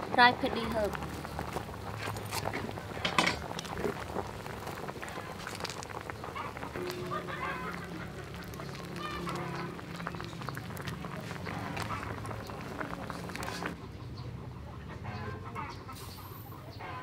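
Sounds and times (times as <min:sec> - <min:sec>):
soup boiling in pot: 0:00.0 - 0:13.8
fowl honking: 0:06.2 - 0:13.7.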